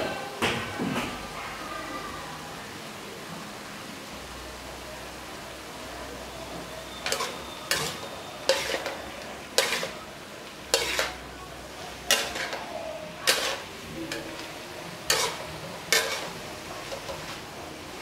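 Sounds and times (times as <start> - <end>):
food sizzling: 1.2 - 18.0
metal spatula scraping a wok: 7.0 - 10.0, 10.7 - 11.3, 11.9 - 17.6.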